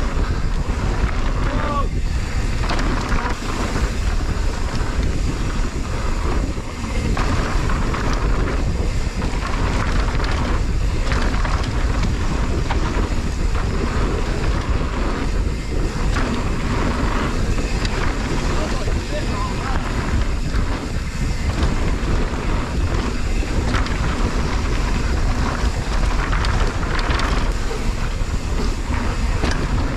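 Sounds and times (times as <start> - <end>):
bike rattling: 0.0 - 29.9
tyres rumbling on dirt: 0.0 - 29.9
wind buffeting microphone: 0.0 - 29.9.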